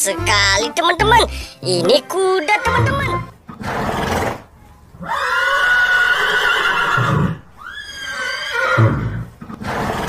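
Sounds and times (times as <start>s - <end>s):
horse whinnying: 3.6s - 4.4s, 5.0s - 10.0s.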